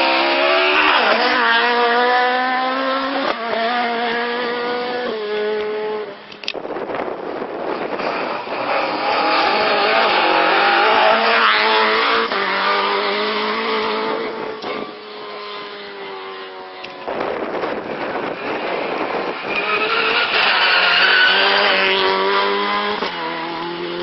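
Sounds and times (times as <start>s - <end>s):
rally car engine passing: 0.0s - 6.2s, 7.1s - 24.0s.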